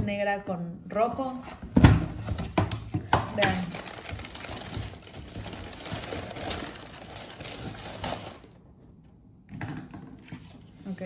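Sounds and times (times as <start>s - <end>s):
tissue paper rustling: 3.4s - 8.6s.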